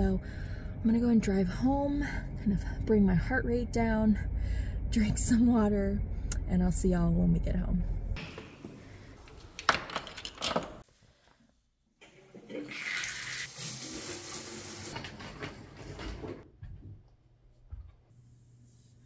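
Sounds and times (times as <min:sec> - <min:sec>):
shower spraying water: 0:12.6 - 0:15.0.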